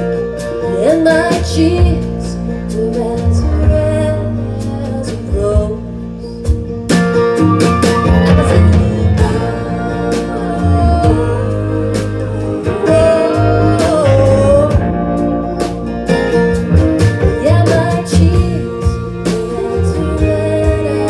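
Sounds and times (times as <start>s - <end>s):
live band music: 0.0s - 21.0s
sliding melody line: 7.2s - 21.0s.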